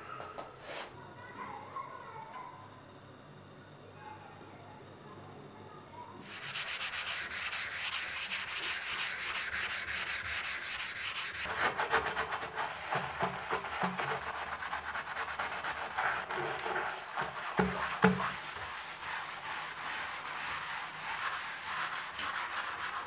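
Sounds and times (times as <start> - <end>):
scrubbing ceramic washbasin: 6.2 - 23.0.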